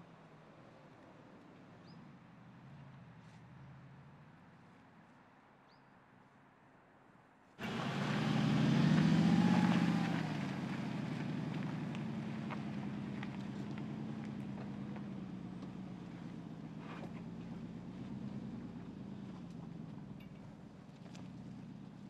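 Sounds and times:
car engine pulling at low speed: 7.6 - 22.0.

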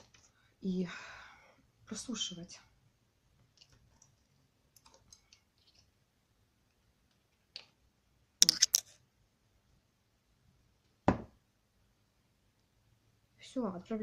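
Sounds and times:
hands handling wire figure clicks: 8.4 - 8.8.

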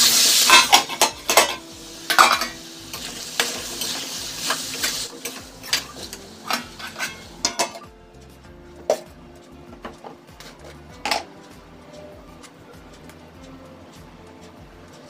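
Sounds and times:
spoon scraping metal pan: 0.0 - 7.9
vegetables sizzling: 0.0 - 9.1
spoon clanking on pan: 0.1 - 7.9, 9.8 - 11.3.

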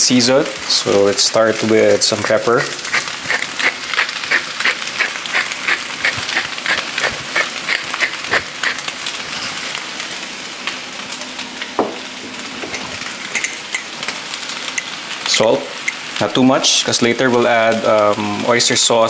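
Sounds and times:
fried rice sizzling in a pan: 0.0 - 19.0
pepper mill grinding: 0.8 - 9.8, 12.6 - 16.2.

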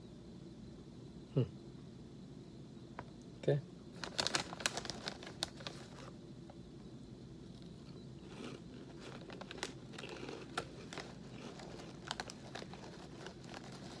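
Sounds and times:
plastic snack bag crackling: 4.0 - 6.2, 7.5 - 14.0
crunchy cheese puffs chewed: 7.4 - 14.0.

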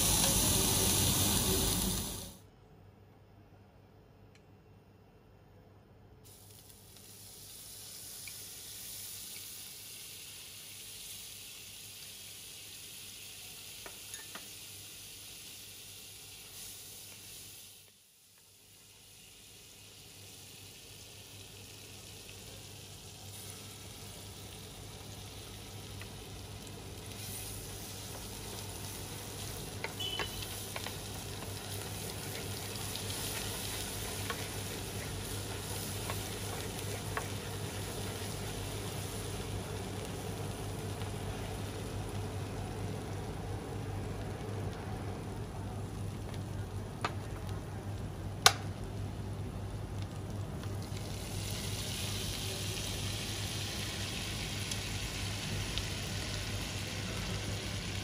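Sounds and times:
butter sizzling in frying pan: 0.0 - 2.4, 6.3 - 58.0
wooden spatula scraping: 30.5 - 38.6.

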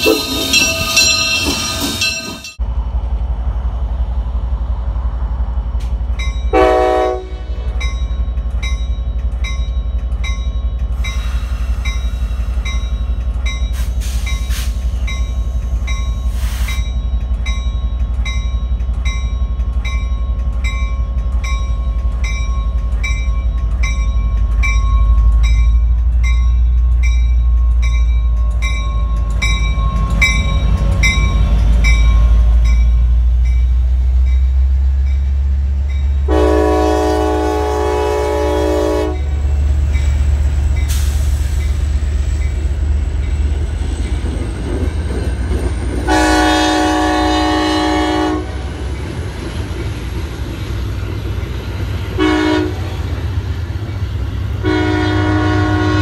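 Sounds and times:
train rumbling by: 0.0 - 56.0
train horn: 6.5 - 7.6, 36.3 - 39.3, 46.0 - 48.7, 52.2 - 53.0, 54.6 - 56.0.

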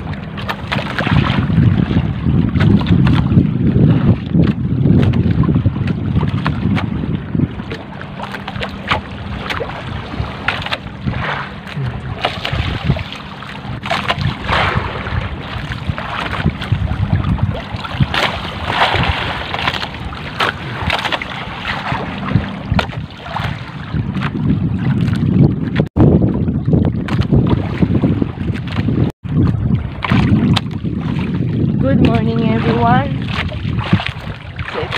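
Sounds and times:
water splashing against boat hull: 0.0 - 34.9
wind buffeting microphone: 0.0 - 34.9
steady low hum: 7.1 - 23.7.

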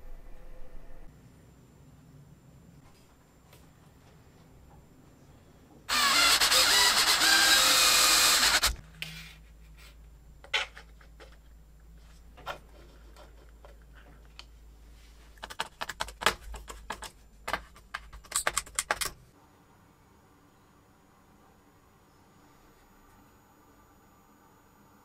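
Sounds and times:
electric drill boring into metal: 5.9 - 8.8
small parts and screwdriver clicking: 15.4 - 19.2.

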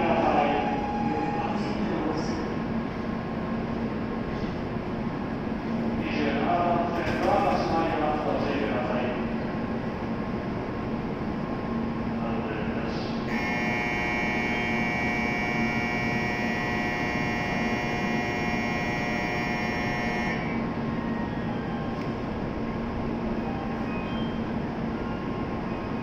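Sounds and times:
electronic bell tone: 0.2 - 1.8, 13.3 - 20.6
low steady hum: 13.3 - 20.8.

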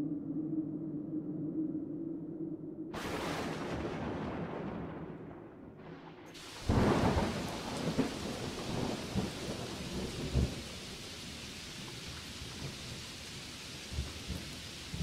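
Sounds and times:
rain hiss: 3.0 - 5.0, 5.8 - 15.0
thunder crack and rumble: 3.0 - 15.0.

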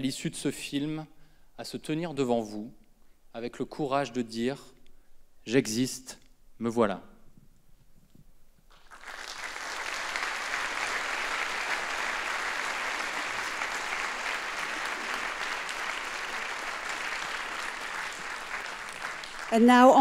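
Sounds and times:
audience applauding: 8.7 - 20.0.

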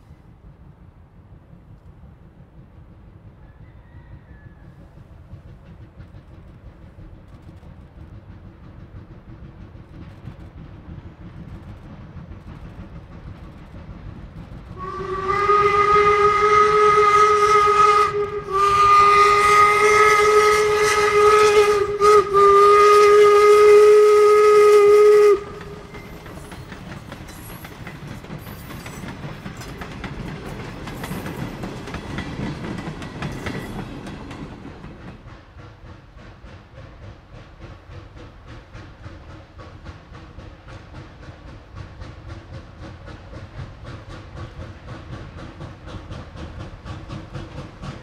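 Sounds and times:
train rolling on rails: 0.0 - 48.0
steam locomotive whistle: 14.8 - 26.4.

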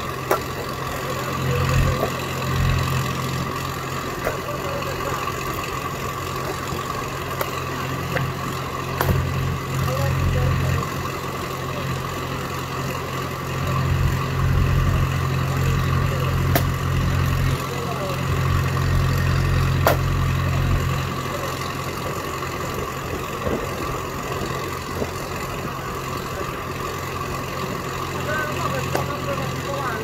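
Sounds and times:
log splitter engine running: 0.0 - 30.0
sharp cracks: 16.4 - 16.9, 19.6 - 20.3.

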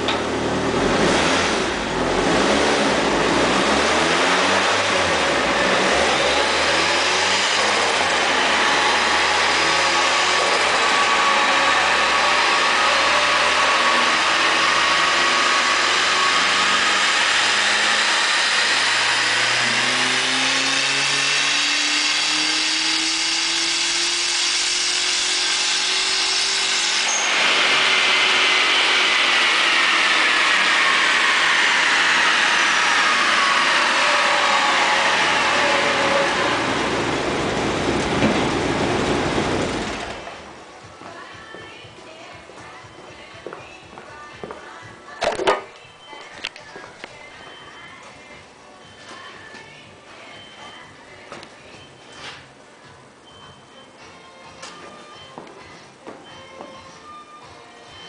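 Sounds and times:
turbocharged car engine revving: 0.0 - 40.6.

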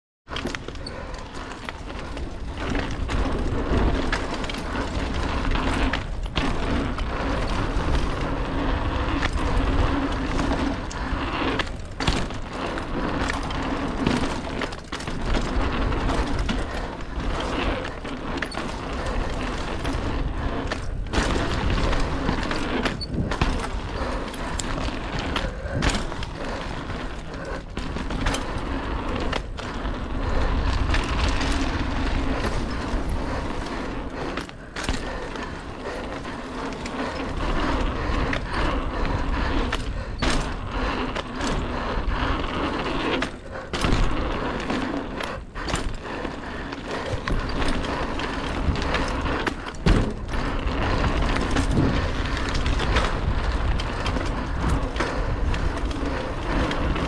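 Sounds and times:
bike knocking and rattling: 0.3 - 57.0
tyres rolling on dirt: 0.3 - 57.0
wind buffeting microphone: 15.2 - 57.0.

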